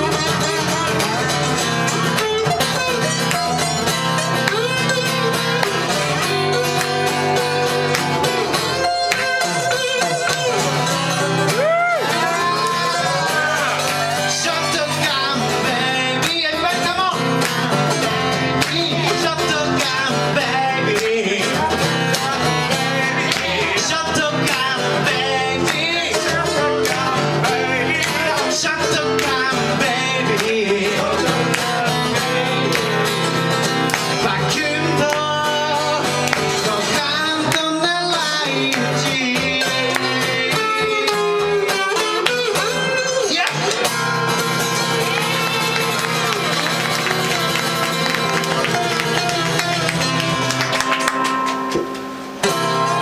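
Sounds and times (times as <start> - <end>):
man singing: 0.0 - 50.5
acoustic guitars strummed: 0.0 - 53.0.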